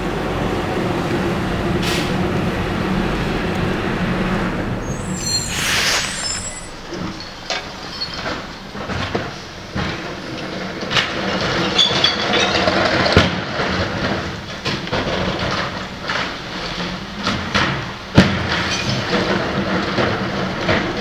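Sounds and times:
garbage truck engine running: 0.0 - 21.0
recyclables tumbling: 0.0 - 21.0
carts banging on hopper: 6.7 - 21.0.

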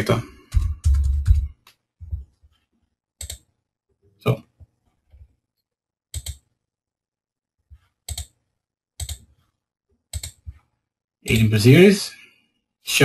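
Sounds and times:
computer mouse clicks: 3.2 - 3.5, 6.2 - 6.5, 8.0 - 8.4, 9.0 - 9.3, 10.1 - 10.7.

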